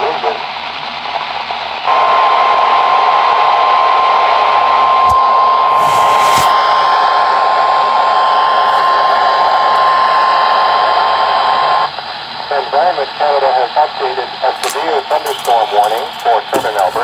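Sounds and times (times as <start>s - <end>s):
radio static: 0.0s - 0.5s, 5.0s - 17.0s
steady high alarm tone: 1.9s - 11.9s, 14.5s - 17.0s.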